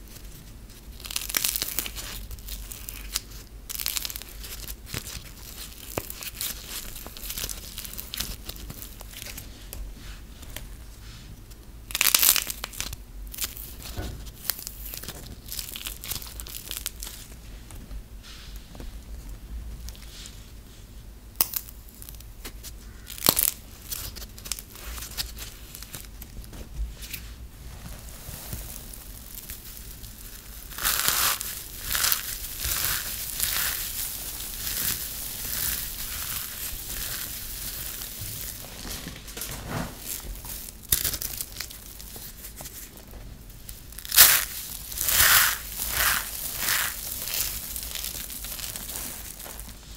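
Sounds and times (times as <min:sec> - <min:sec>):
soap being crushed by hand: 0:00.9 - 0:09.4, 0:43.8 - 0:49.8.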